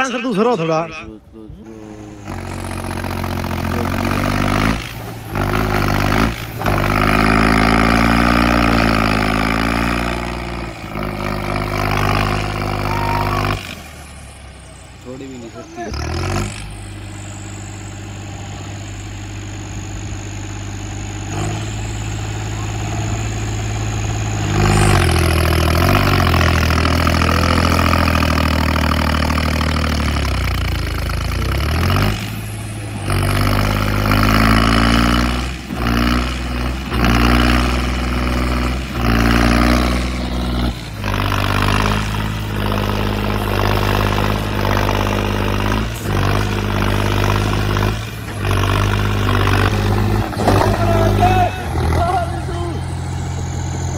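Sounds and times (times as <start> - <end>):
tractor engine labouring: 0.0 - 53.9
thin high whistle: 12.8 - 13.5.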